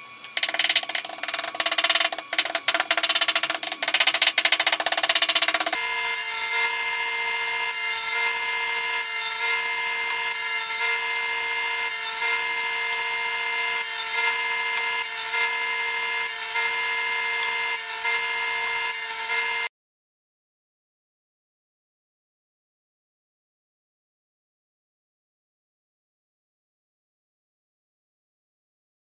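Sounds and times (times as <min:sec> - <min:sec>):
table saw cutting wood: 0:00.0 - 0:19.7.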